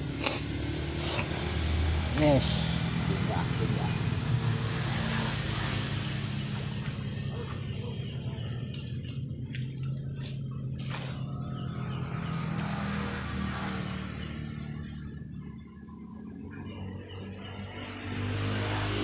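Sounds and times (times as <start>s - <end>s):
shallow water running in ditch: 0.0s - 11.3s
sharp ticks: 6.0s - 7.3s.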